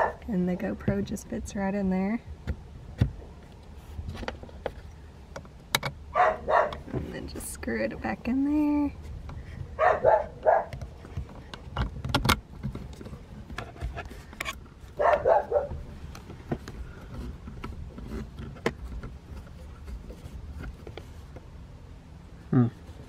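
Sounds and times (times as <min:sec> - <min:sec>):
dog barking: 0:06.1 - 0:06.8, 0:09.8 - 0:10.7, 0:15.0 - 0:15.8.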